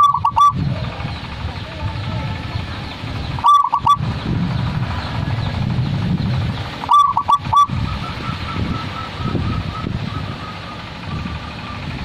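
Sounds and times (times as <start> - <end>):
dove cooing: 0.0 - 0.7, 3.4 - 4.0, 6.8 - 11.8
low background rumble: 0.0 - 12.0.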